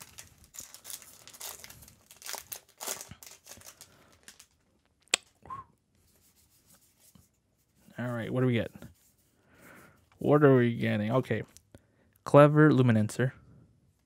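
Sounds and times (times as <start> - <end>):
foil wrapper tearing and crinkling: 0.0 - 4.6.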